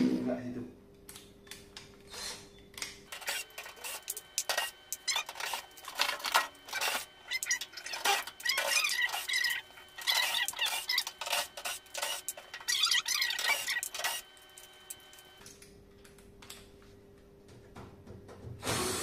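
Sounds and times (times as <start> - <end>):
screws and metal rattling: 3.1 - 15.4.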